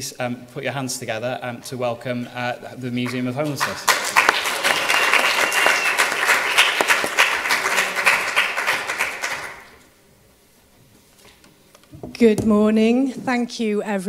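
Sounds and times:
audience applauding: 0:03.0 - 0:09.8.

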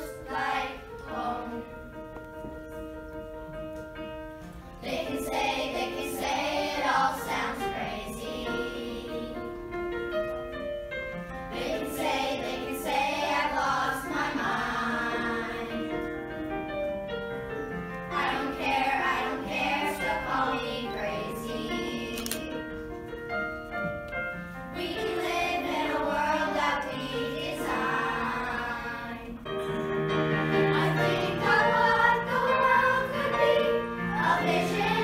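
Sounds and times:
group of voices singing: 0:00.0 - 0:01.8, 0:04.8 - 0:09.4, 0:11.5 - 0:16.1, 0:18.1 - 0:22.5, 0:24.8 - 0:29.4, 0:30.5 - 0:35.0.

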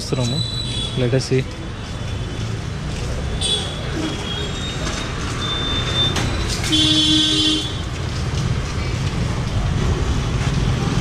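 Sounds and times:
street traffic rumble: 0:00.0 - 0:11.0
vehicle horn honking: 0:06.7 - 0:07.8.

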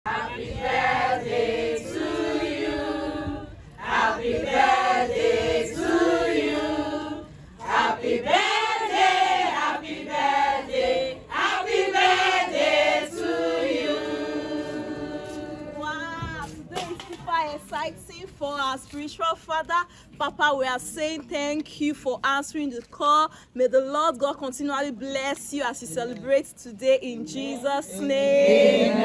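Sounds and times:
women singing as a choir: 0:00.1 - 0:16.4, 0:27.3 - 0:29.0.

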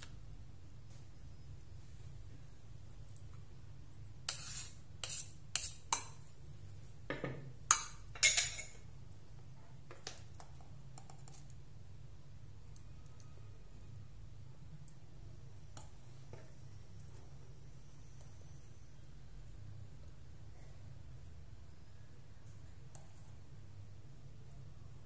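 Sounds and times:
spoon scraping ceramic bowl: 0:04.3 - 0:06.2, 0:07.8 - 0:08.8.

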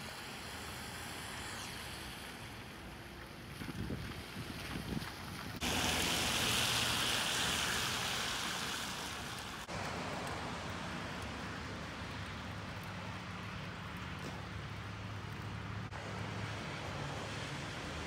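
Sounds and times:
rain hissing: 0:00.0 - 0:03.0, 0:05.6 - 0:16.0.

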